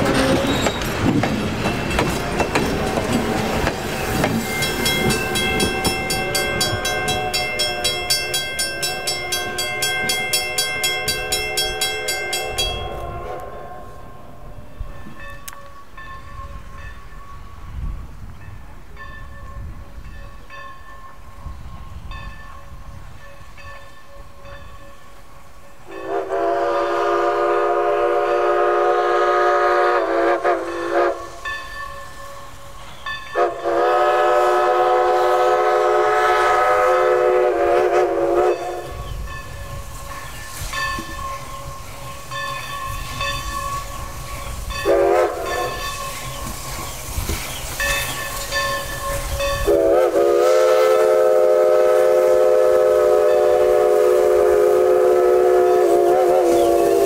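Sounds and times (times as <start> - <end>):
rail noise: 0.0 - 57.0
steam locomotive whistle: 2.6 - 14.9, 25.9 - 42.3, 42.9 - 47.0, 47.9 - 57.0
locomotive exhaust rumble: 32.5 - 57.0.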